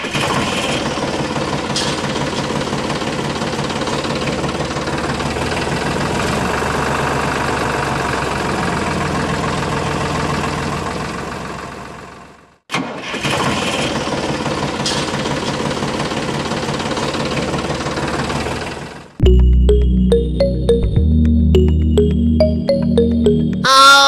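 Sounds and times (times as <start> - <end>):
tractor engine running: 0.1 - 12.4, 14.1 - 20.3.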